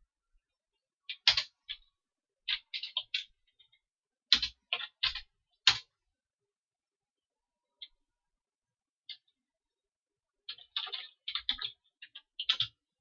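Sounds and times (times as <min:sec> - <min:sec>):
computer keyboard keystrokes: 0:04.3 - 0:05.9, 0:10.5 - 0:12.8.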